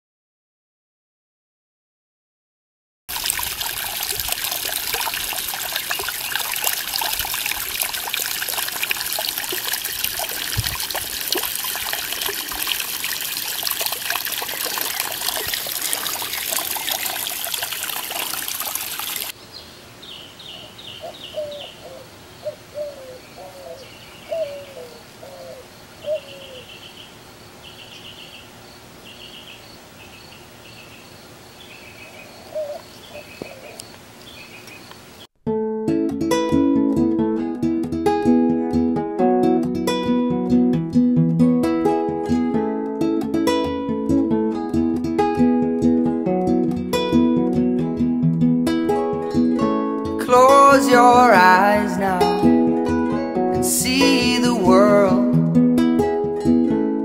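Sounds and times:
water splashing into rock basin: 3.1 - 19.4
birds chirping: 14.5 - 35.3.

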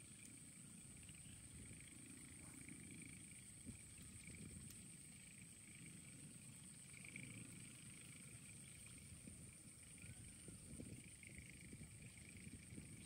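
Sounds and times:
faint wavering hum: 0.0 - 13.0
wind on microphone rumble: 3.3 - 13.0.

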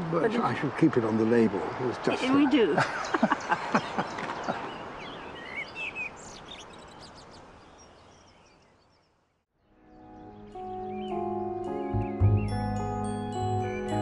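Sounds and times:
people laughing: 2.2 - 4.8
birds chirping and whistling: 3.0 - 9.2, 9.9 - 14.0.

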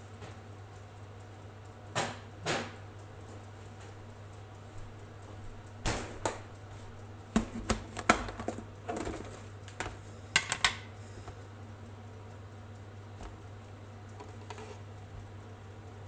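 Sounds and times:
steady low hum: 0.0 - 16.0
kitchen objects knocking and clicking: 7.3 - 10.9.

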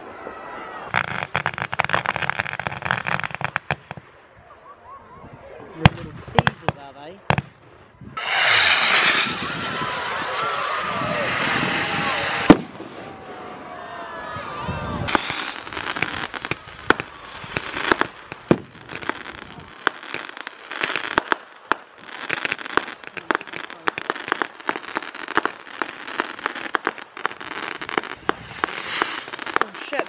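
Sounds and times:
fireworks crackling: 0.4 - 4.1, 8.2 - 13.7, 15.1 - 30.0
fireworks pops and bangs: 0.9 - 4.1, 5.8 - 13.0, 15.1 - 30.0.

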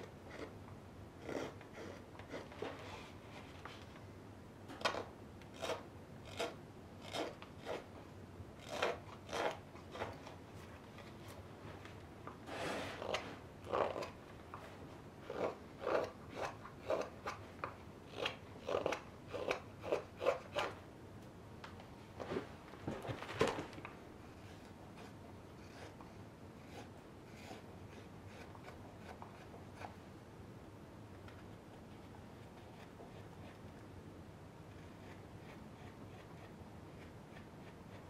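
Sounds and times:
knife shaving wood: 1.2 - 3.6, 5.5 - 7.9, 8.6 - 10.4, 12.5 - 14.2, 15.3 - 17.4, 18.1 - 20.8, 24.2 - 30.0, 34.7 - 38.0.

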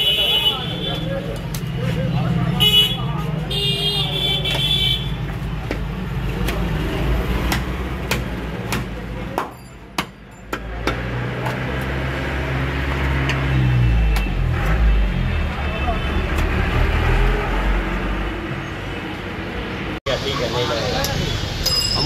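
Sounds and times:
road traffic rumble: 0.0 - 22.0
cleaver chopping meat on wood: 5.6 - 12.0.

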